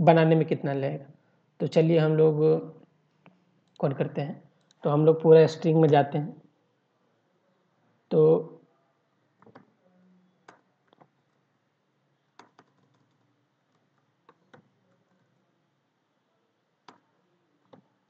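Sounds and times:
computer keyboard keystrokes: 0:12.4 - 0:13.2.

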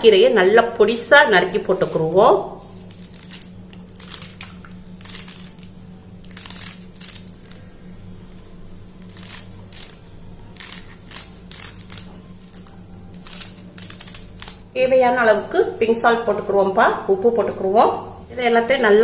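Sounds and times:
low hum: 0:00.0 - 0:19.0.

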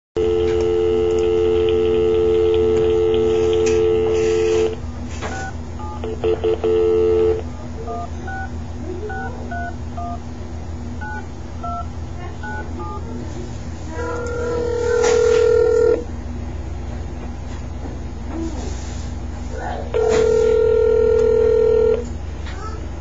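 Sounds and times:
telephone dial tone: 0:00.2 - 0:04.8, 0:05.4 - 0:08.4, 0:14.2 - 0:16.0, 0:20.0 - 0:22.0
low steady hum: 0:00.2 - 0:23.0
touch-tone keypad beeps: 0:09.1 - 0:10.2.

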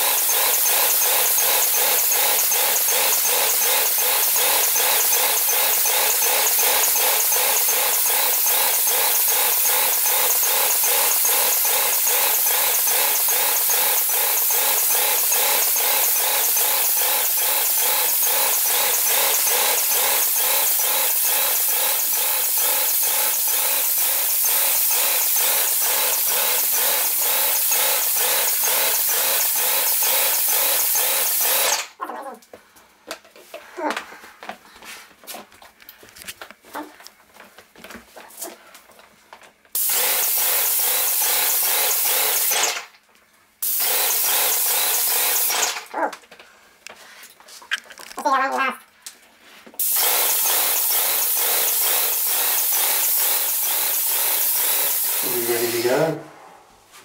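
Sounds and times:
spray tip hissing: 0:00.0 - 0:31.7, 0:39.8 - 0:42.6, 0:43.6 - 0:45.8, 0:49.8 - 0:55.9
paint sprayer pump pulsing: 0:00.0 - 0:31.9, 0:39.7 - 0:42.9, 0:43.6 - 0:45.9, 0:49.8 - 0:56.1.

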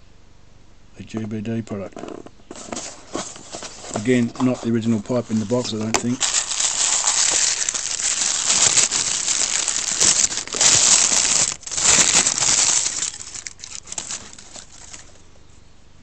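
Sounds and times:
plastic wrapping crinkling: 0:02.6 - 0:15.3.

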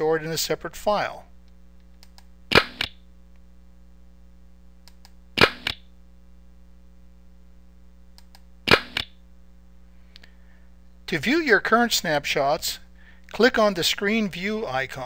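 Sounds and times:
camera shutter click: 0:02.5 - 0:03.0, 0:05.4 - 0:05.8, 0:08.7 - 0:09.1.

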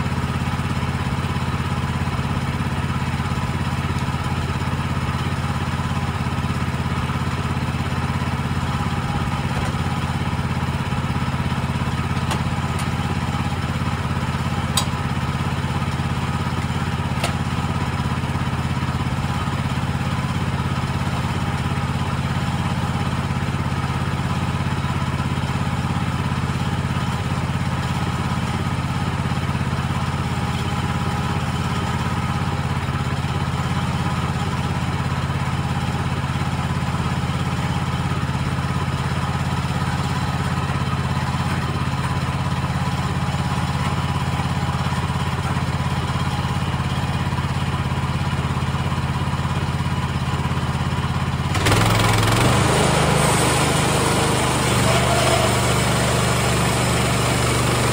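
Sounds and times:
small gasoline engine running: 0:00.0 - 0:57.9.

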